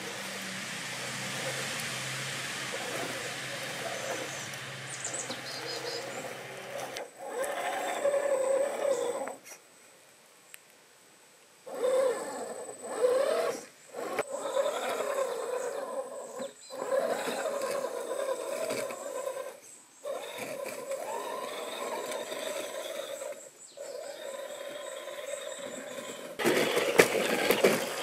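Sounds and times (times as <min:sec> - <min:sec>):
electric motor whining: 0:00.0 - 0:09.4, 0:11.7 - 0:28.0
thin high steady whine: 0:00.0 - 0:09.4.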